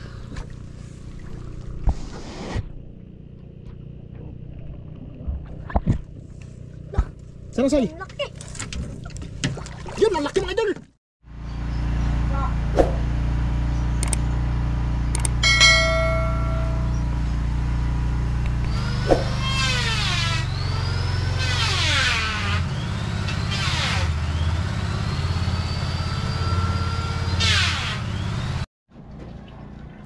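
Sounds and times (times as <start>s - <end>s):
low hum: 0.0s - 7.5s, 11.3s - 21.4s
sharp clicks: 14.0s - 14.3s, 15.1s - 15.4s
bright chime: 15.4s - 17.2s.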